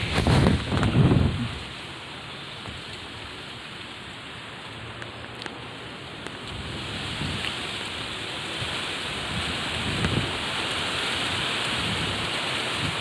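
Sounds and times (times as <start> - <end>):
wind buffeting microphone: 0.0 - 1.8, 6.5 - 13.0
wind rushing through palm fronds: 0.0 - 13.0.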